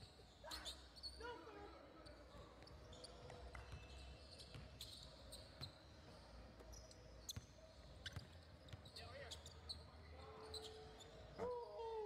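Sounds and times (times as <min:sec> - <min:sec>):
basketball bouncing on indoor court: 0:03.3 - 0:06.0.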